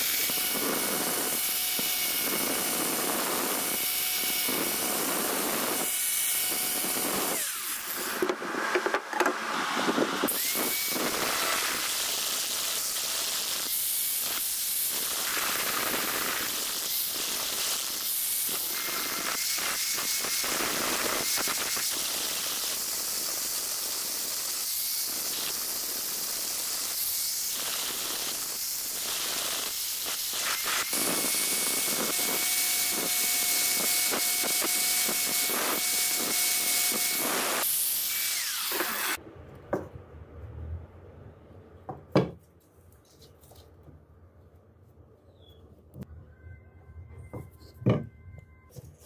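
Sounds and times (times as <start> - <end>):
angle grinder sanding wood: 0.0 - 39.2.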